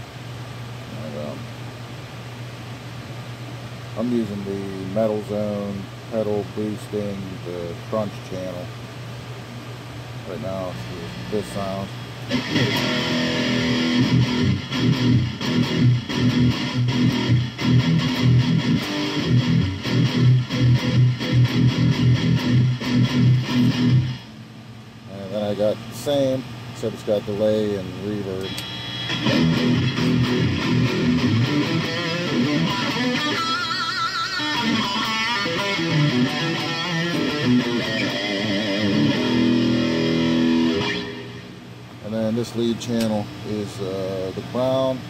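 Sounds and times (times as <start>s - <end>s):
distorted electric guitar riff: 12.3s - 24.3s, 28.4s - 41.6s.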